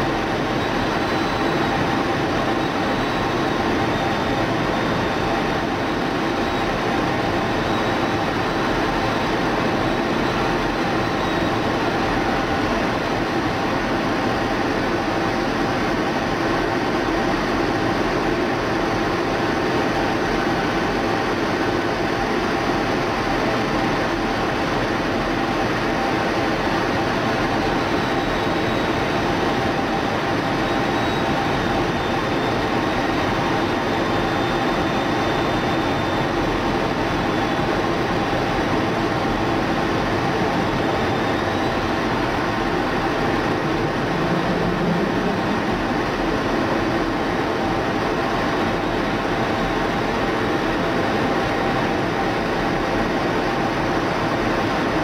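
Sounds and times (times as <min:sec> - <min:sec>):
faint high whine: 0:00.0 - 0:55.0
cockpit rush and hum: 0:39.2 - 0:47.2.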